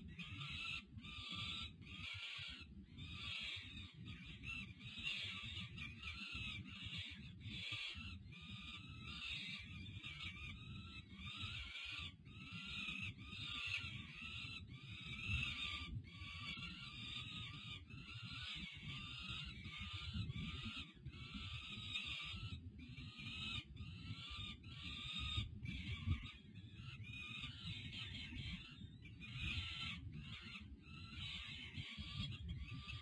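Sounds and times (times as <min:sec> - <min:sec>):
young falcons harsh begging calls: 0:07.6 - 0:28.6.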